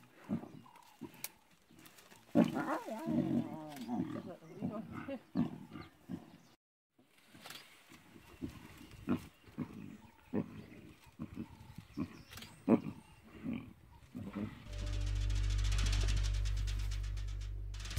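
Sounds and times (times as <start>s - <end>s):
lionesses growling and snarling: 2.3s - 6.6s, 9.0s - 15.0s.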